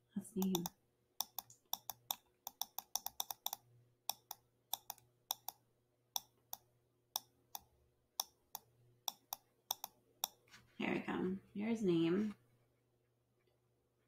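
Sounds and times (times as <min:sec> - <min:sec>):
computer mouse button clicking: 0:00.4 - 0:05.6, 0:07.2 - 0:10.4.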